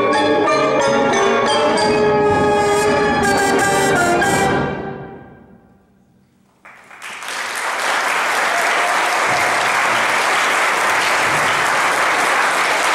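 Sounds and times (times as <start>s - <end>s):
brass ensemble chord: 0.0s - 5.7s
audience applause: 6.6s - 12.9s.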